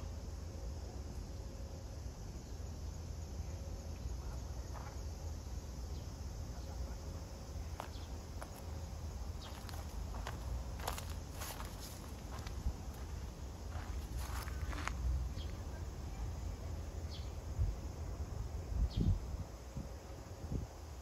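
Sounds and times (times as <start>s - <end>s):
low outdoor rumble: 0.0s - 20.8s
footsteps scuffing and clicking: 9.4s - 14.9s.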